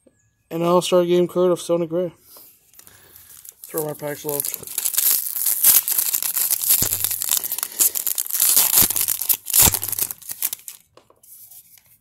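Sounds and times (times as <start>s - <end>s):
foil wrapper crinkling and tearing: 2.7s - 10.9s.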